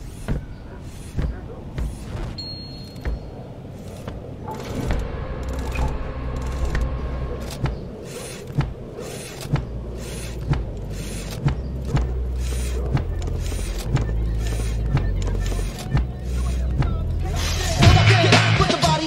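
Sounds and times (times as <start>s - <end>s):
sharp thumps: 0.0s - 17.3s
whirring clicking mechanism: 0.0s - 17.3s
low steady drone: 2.4s - 17.8s.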